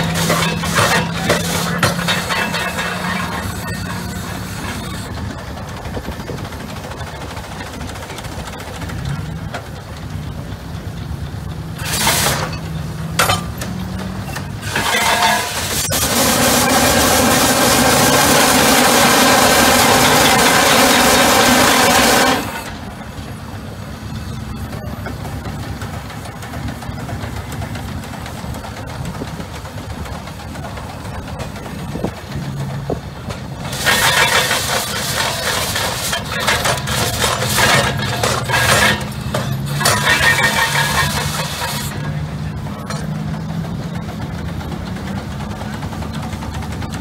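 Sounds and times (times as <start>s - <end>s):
steam machinery humming: 0.0s - 47.0s
steam hissing: 11.8s - 12.6s, 14.5s - 22.8s, 31.4s - 42.1s.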